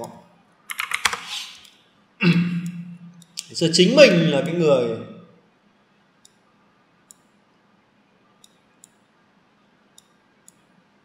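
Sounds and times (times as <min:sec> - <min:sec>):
computer mouse clicking: 0:00.7 - 0:01.8, 0:08.4 - 0:09.0, 0:10.0 - 0:10.7.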